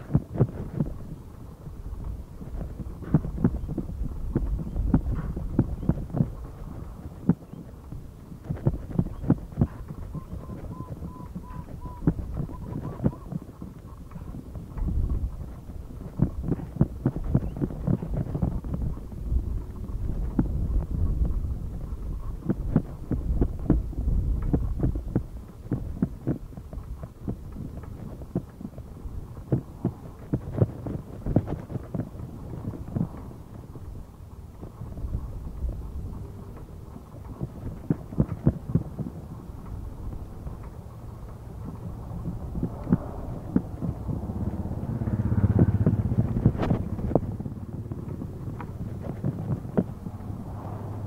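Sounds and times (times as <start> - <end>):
wind rumble on microphone: 0.0 - 51.0
motorcycle engine passing: 39.2 - 51.0.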